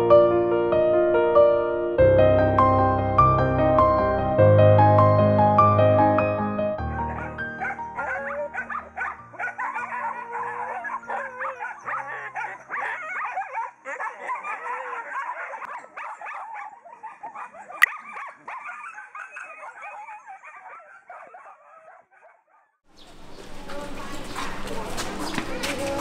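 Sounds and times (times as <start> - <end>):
low music notes: 0.0 - 11.0
dogs whining and howling: 7.0 - 22.7.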